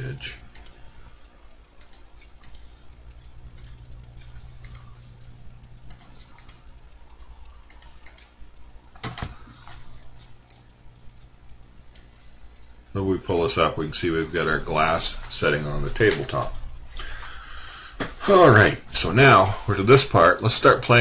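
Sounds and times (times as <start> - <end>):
low electrical hum: 0.0 - 21.0
computer mouse and keyboard clicks: 0.4 - 0.8, 1.8 - 2.9, 3.5 - 6.8, 7.4 - 8.3, 8.9 - 10.7.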